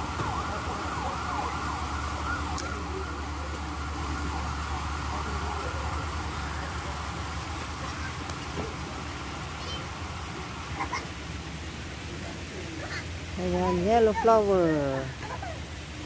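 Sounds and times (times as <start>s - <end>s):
wavering siren-like tone: 0.0s - 6.8s.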